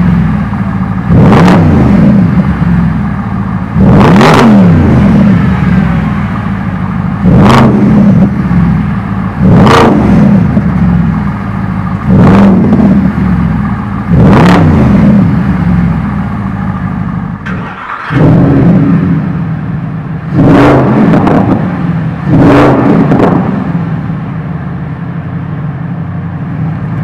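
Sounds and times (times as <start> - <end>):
car engine revving: 0.0 - 27.0.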